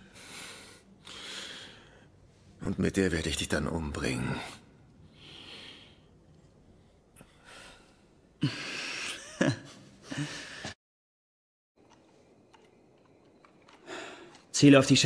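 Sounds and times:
man's breathy laughter: 0:08.4 - 0:10.7.

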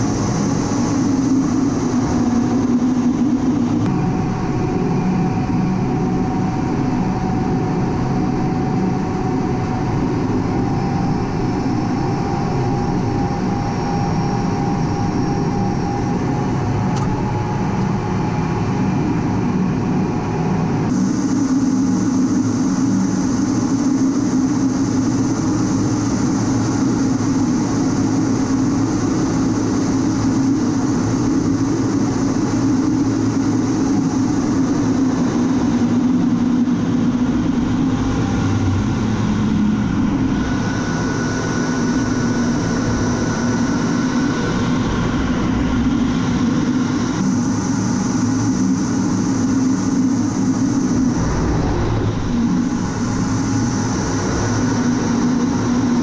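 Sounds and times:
jet cockpit roar: 0:00.0 - 0:56.0.

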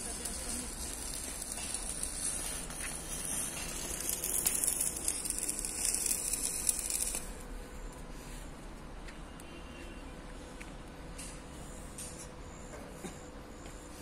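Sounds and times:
welding arc crackling hiss: 0:00.0 - 0:08.0.

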